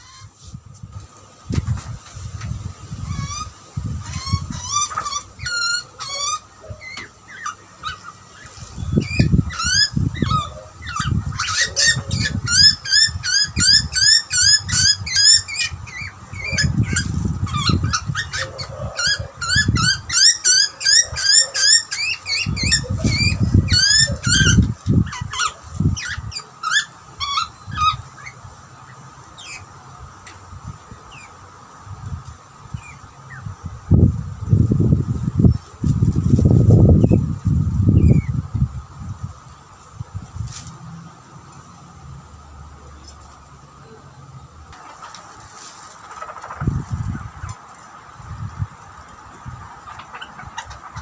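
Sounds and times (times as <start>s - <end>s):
bird squeaky begging calls: 4.1s - 28.4s.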